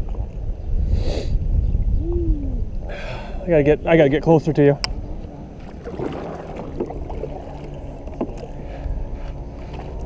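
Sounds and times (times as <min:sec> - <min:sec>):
paddle strokes in water: 0:05.0 - 0:10.0
light knocks on boat: 0:06.0 - 0:08.5.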